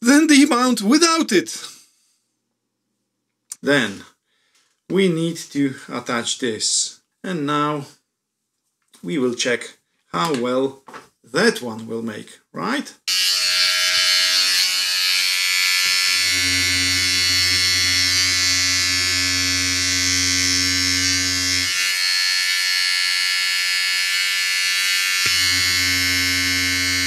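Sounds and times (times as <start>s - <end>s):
electric trimmer buzzing: 13.1s - 27.0s.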